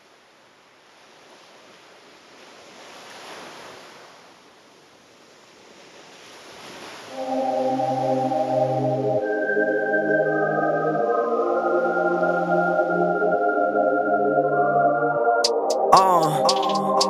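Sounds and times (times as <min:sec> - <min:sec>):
small waves on sandy beach: 0:00.0 - 0:07.2
organ-like music: 0:07.1 - 0:17.0.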